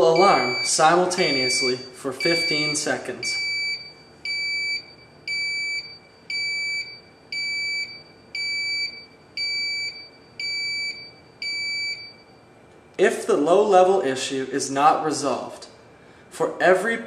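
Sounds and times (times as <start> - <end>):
high-pitched alarm beeps: 0.0 - 12.4.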